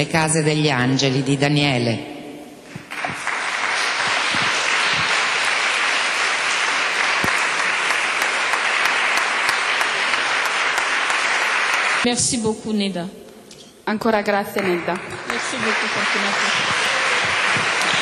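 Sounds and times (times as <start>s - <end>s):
audience applauding: 2.7s - 12.1s, 14.6s - 18.0s.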